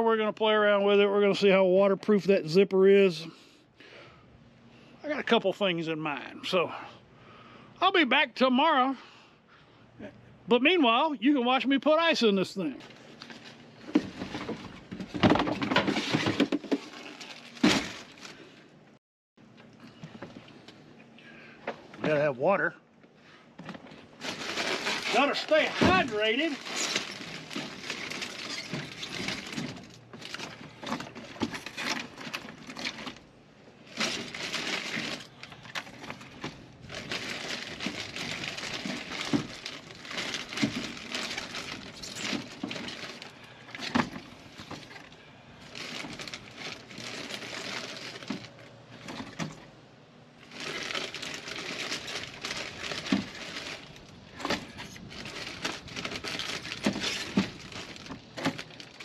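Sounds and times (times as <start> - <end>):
plastic shrink-wrap crinkling: 15.9 - 18.6, 24.1 - 33.2, 33.8 - 49.2, 50.4 - 59.0.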